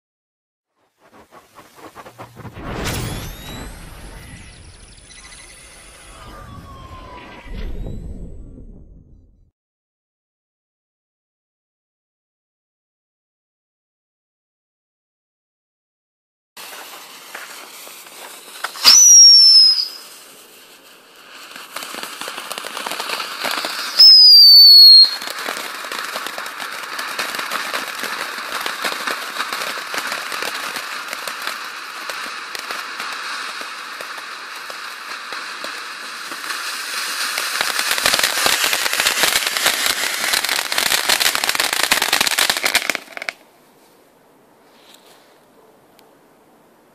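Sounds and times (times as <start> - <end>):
firework hissing and crackling: 0.8 - 7.4, 16.6 - 43.4
firework hissing: 0.8 - 7.9, 16.6 - 43.4
shrill firework whistle: 0.9 - 9.2, 16.6 - 20.9, 21.5 - 43.0.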